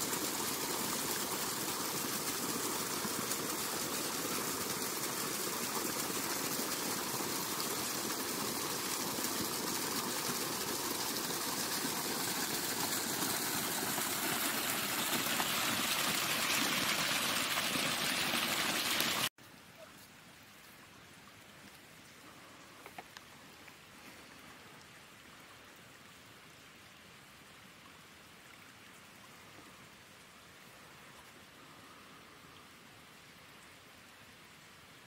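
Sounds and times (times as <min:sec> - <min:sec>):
water running in channel: 0:00.0 - 0:19.9.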